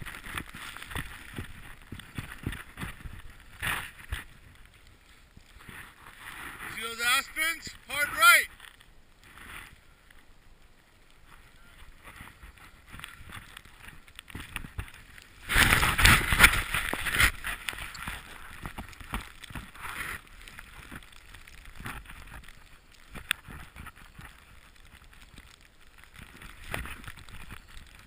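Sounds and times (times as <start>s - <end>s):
snowboard rushing through powder snow: 0.0s - 8.5s, 10.8s - 28.0s.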